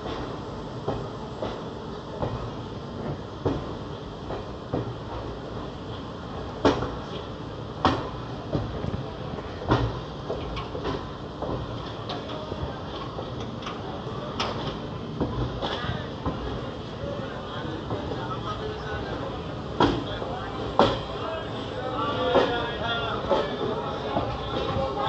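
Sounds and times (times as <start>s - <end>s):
train coach rumbling: 0.0s - 25.0s
wheels and couplings clanking: 9.6s - 16.6s.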